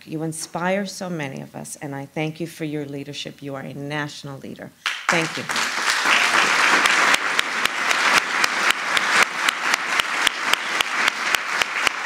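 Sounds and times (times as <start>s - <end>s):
audience applause: 4.8s - 12.0s
person clapping close: 4.8s - 12.0s.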